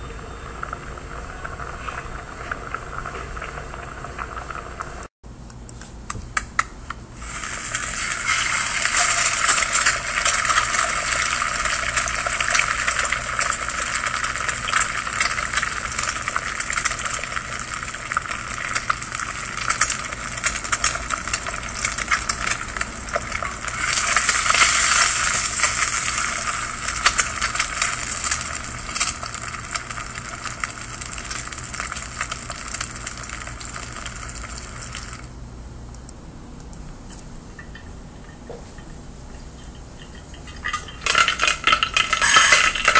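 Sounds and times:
eggs sizzling in a pan: 0:00.0 - 0:05.1, 0:07.2 - 0:35.4, 0:39.3 - 0:42.9
crackling and popping fat: 0:07.7 - 0:42.9.

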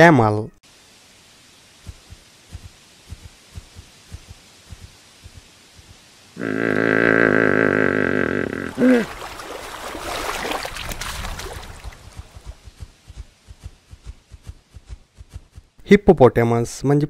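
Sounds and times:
hippopotamus bellowing: 0:06.4 - 0:09.2
rough crackly grunting: 0:06.4 - 0:09.2.

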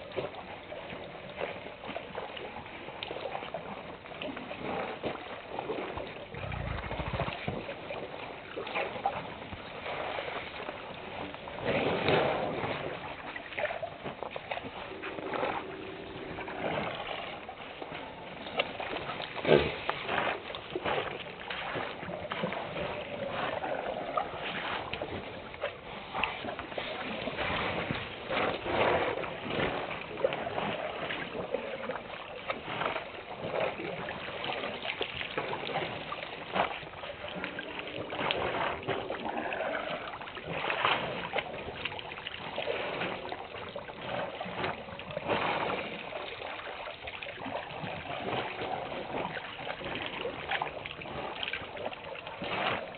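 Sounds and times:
elephants splashing water: 0:00.0 - 0:52.9.

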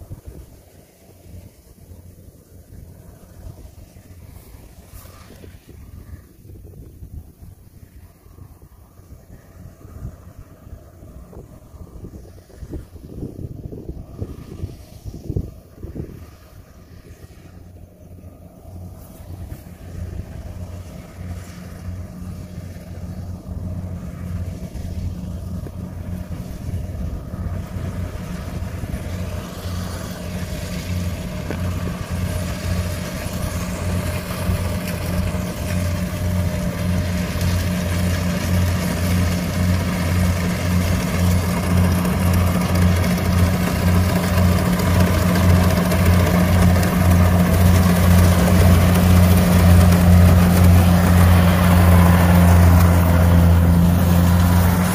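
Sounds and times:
combine harvester engine hum: 0:00.0 - 0:54.9
cutter and drum whirring rattle: 0:18.2 - 0:54.9.

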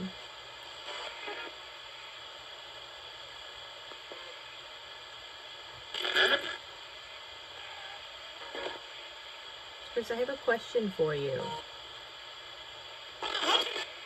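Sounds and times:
radio static hiss: 0:00.0 - 0:14.0
radio station burst: 0:05.9 - 0:06.8, 0:13.2 - 0:14.0.

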